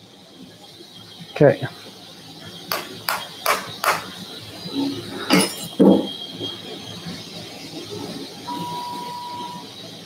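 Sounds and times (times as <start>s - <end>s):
sharp knocks: 2.7s - 4.1s
steady single-pitch tone: 8.5s - 9.8s.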